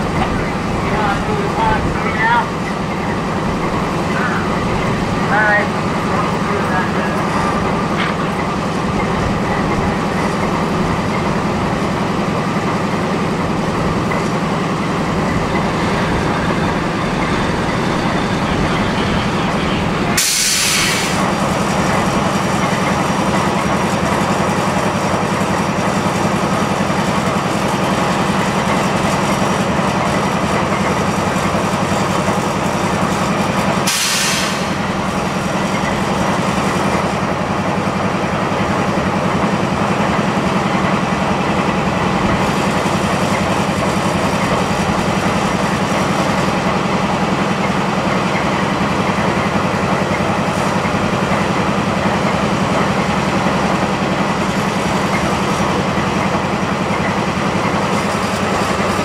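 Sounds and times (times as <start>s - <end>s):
diesel locomotive engine idling: 0.0s - 59.0s
short hissing bursts: 20.2s - 21.2s.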